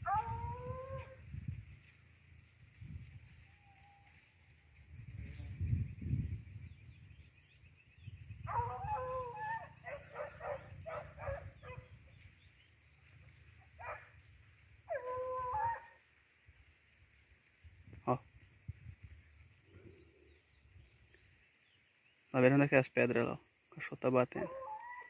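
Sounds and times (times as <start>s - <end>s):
hunting dog baying: 8.5s - 12.0s, 13.6s - 16.0s, 24.4s - 25.0s.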